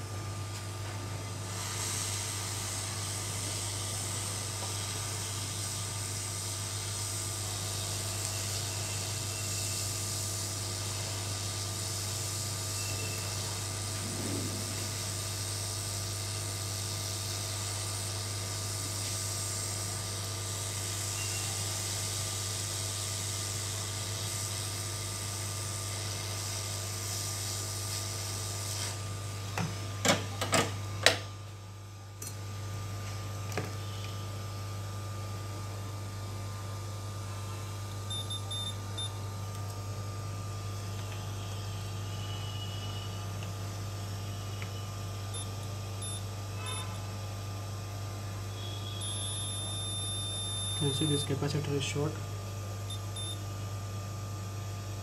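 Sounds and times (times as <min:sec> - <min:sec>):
hot air blower hissing: 0:01.3 - 0:30.0.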